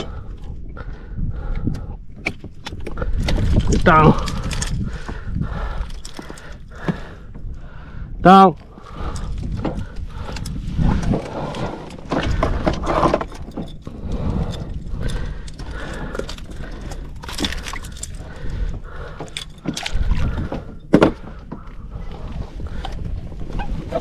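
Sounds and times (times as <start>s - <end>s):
wind buffeting microphone: 0.0s - 24.0s
fishing gear handling clicks: 1.6s - 5.2s, 5.8s - 7.0s, 9.1s - 20.6s.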